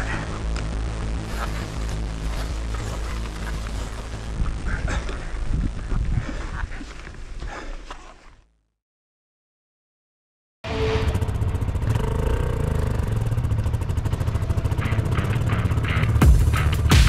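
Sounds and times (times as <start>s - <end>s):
motorcycle engine running: 0.0s - 5.9s, 10.7s - 17.0s.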